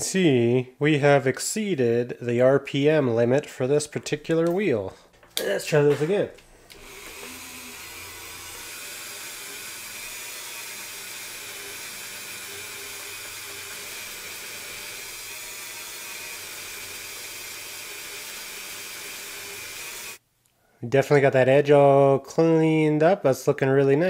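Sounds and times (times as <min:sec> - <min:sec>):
rotary tool whining: 0:06.4 - 0:20.2.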